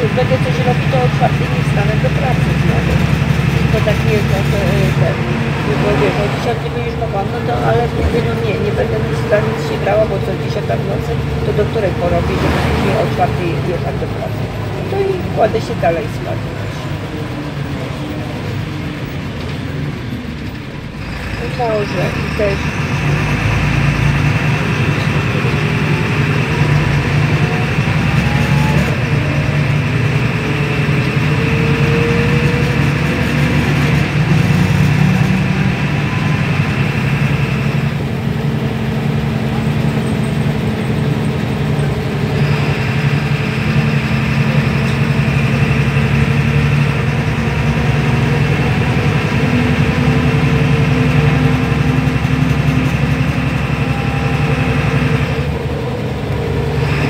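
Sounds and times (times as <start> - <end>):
bus diesel engine: 0.0 - 57.0
road noise: 0.0 - 57.0.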